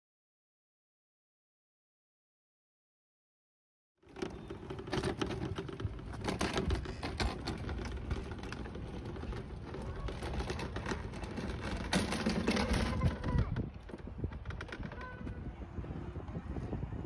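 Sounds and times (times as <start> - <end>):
go-kart rattling over concrete: 4.0 - 15.6.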